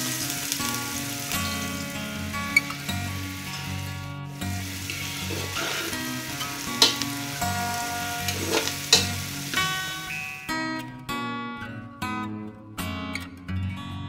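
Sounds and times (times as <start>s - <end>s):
onions sizzling in oil: 0.0s - 10.5s.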